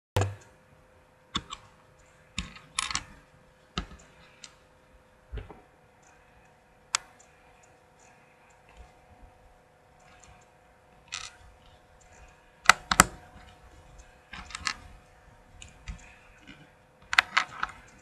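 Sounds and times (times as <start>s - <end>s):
faint steady hum: 0.2s - 18.0s
plastic bricks clicking: 11.1s - 11.4s.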